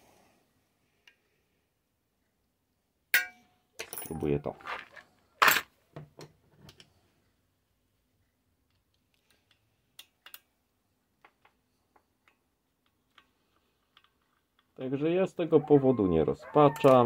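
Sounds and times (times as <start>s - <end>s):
small metal parts clicking: 8.7s - 10.5s, 12.2s - 14.8s.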